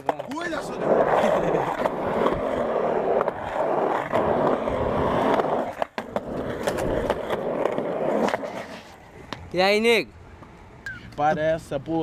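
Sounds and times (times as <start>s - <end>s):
sharp skateboard clacks: 0.0s - 2.5s, 3.1s - 9.5s
skateboard wheels rolling on concrete: 0.0s - 12.0s.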